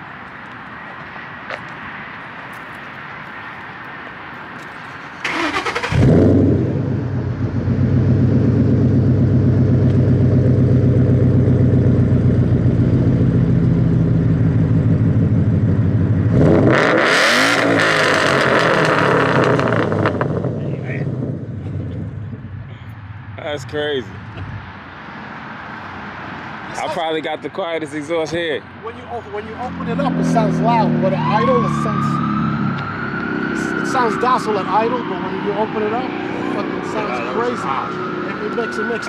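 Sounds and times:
engine cranking on starter: 0:05.2 - 0:06.3
engine revving: 0:05.2 - 0:22.4, 0:29.4 - 0:39.0
car engine idling: 0:07.1 - 0:16.4.

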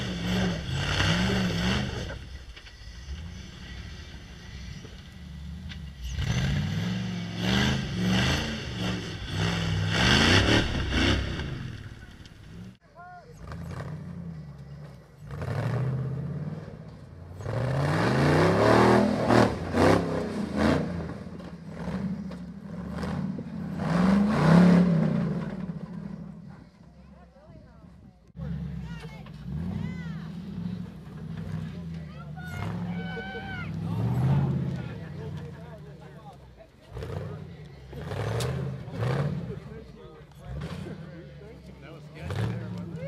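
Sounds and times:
buggy engine revving: 0:00.0 - 0:43.0.

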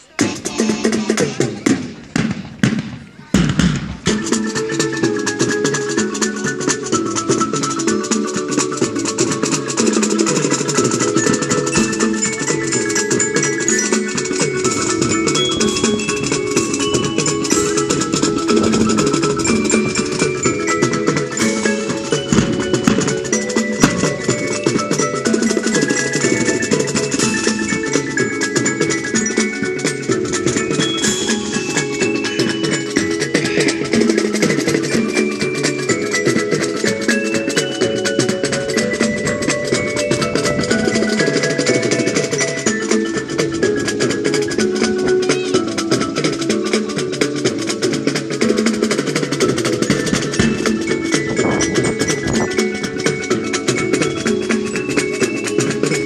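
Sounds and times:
drums keeping steady beat: 0:00.0 - 0:56.0
marching band playing: 0:00.0 - 0:56.0.

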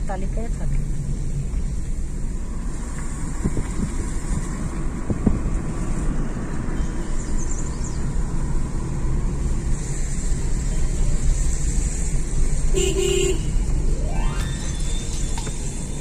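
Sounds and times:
car engine and tyre rumble: 0:00.0 - 0:16.0
car horn beeps: 0:12.8 - 0:13.6.

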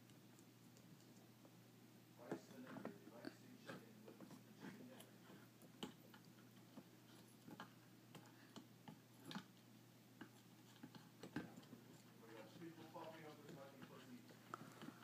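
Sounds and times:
faint clicks and taps on shell: 0:05.0 - 0:15.0.

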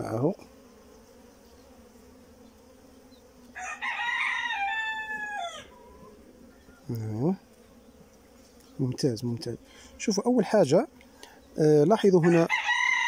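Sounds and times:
honeybees humming: 0:00.0 - 0:13.0
rooster crowing: 0:03.5 - 0:06.7, 0:12.2 - 0:13.0.

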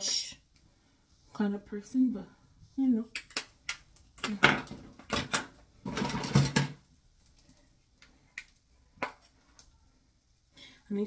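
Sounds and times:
makeup containers clicking and clattering: 0:04.2 - 0:06.8.

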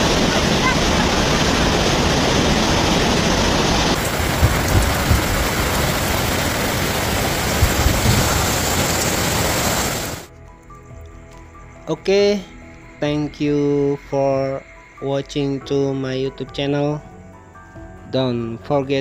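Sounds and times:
heavy rain: 0:00.0 - 0:10.3
rushing floodwater: 0:00.0 - 0:10.3
low thuds: 0:04.0 - 0:09.2.

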